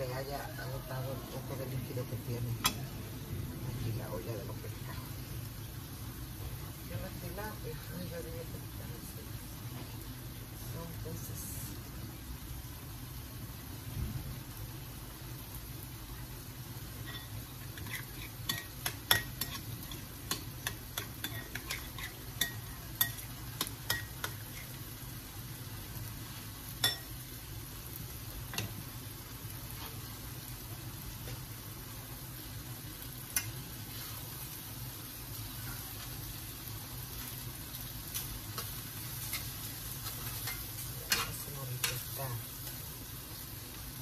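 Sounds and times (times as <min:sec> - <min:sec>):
pans sizzling on stove: 0:00.0 - 0:44.0
spoon scraping in a pot: 0:17.0 - 0:24.8, 0:38.6 - 0:42.0
spoon clinking against glass bowl: 0:26.8 - 0:27.1.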